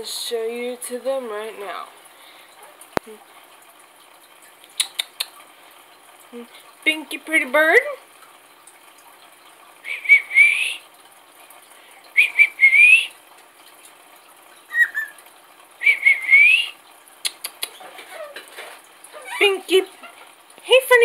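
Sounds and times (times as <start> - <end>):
cockatiel whistling: 12.2 - 13.1, 14.7 - 15.2, 15.8 - 16.7
bird chirp: 14.7 - 15.2.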